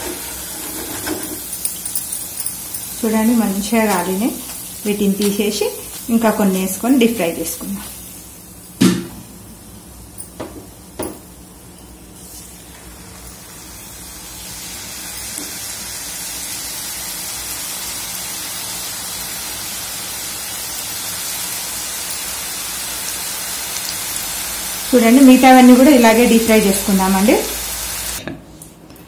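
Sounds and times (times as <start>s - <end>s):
hot oil sizzling: 0.0s - 28.2s.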